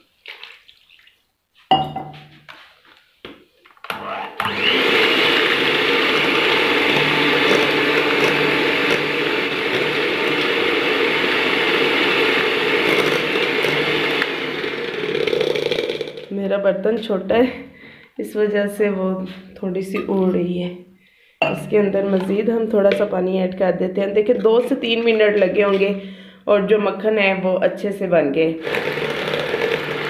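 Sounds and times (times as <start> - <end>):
electric hand beater running: 3.9 - 16.3, 28.6 - 30.0.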